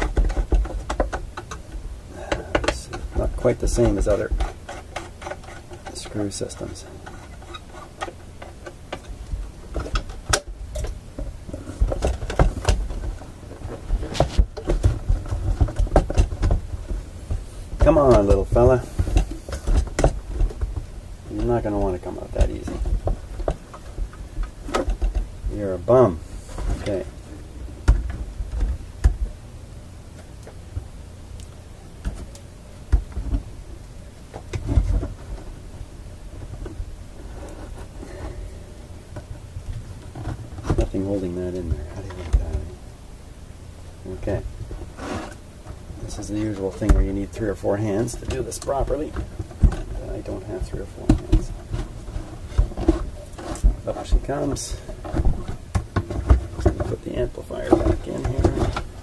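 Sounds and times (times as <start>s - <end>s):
wooden panel knocks and thumps: 0.0s - 5.9s, 7.0s - 25.3s
mechanism clicks and rattles: 0.0s - 17.0s.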